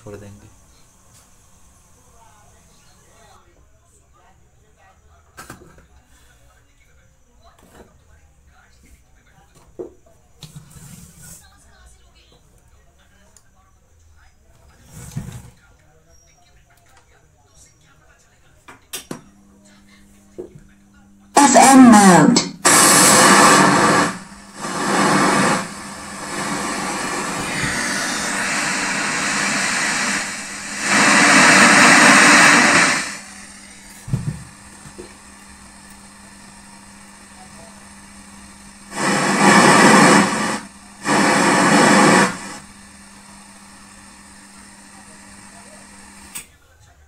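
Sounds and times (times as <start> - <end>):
radio static hiss: 19.5 - 46.4
amplifier hum: 20.8 - 46.3.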